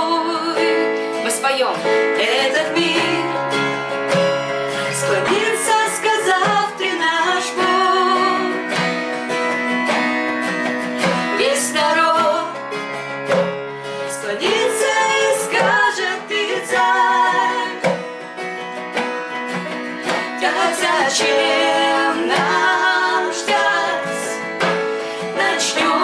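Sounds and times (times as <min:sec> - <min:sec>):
women singing: 0:00.0 - 0:03.8, 0:04.8 - 0:09.0, 0:11.0 - 0:12.6, 0:14.0 - 0:18.1, 0:20.0 - 0:26.0
acoustic guitar strumming: 0:00.0 - 0:26.0.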